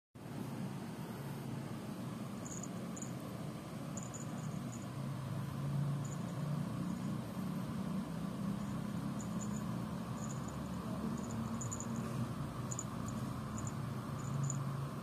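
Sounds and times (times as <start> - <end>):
steady low hum: 0.2 - 15.0
small bell tinkling: 2.4 - 3.2, 3.9 - 5.0, 5.8 - 7.2, 8.5 - 14.8.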